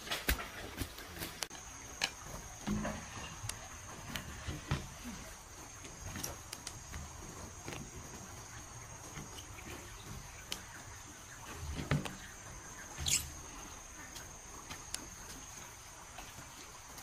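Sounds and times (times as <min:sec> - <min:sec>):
high-pitched insect buzz: 0:13.0 - 0:13.4.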